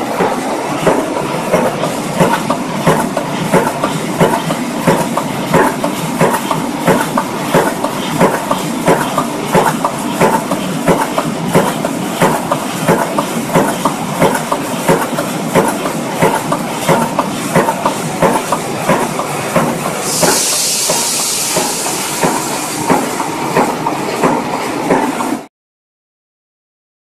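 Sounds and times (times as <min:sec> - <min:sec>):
loud high hiss: 0:19.9 - 0:23.0.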